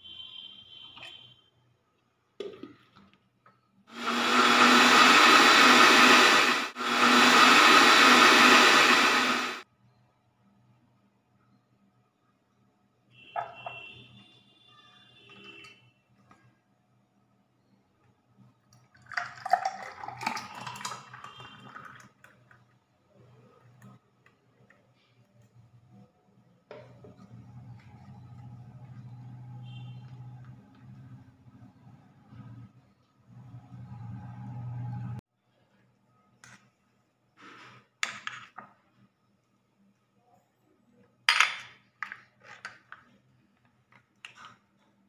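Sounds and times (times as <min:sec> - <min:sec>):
mixer grinder motor running: 0:03.9 - 0:09.6
milkshake pouring into a glass: 0:18.7 - 0:22.8.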